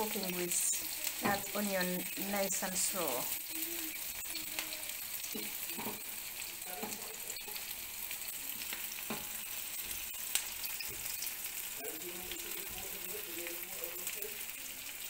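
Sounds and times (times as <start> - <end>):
spatula scraping pan: 0.0 - 11.8
onions sizzling in oil: 0.0 - 15.0.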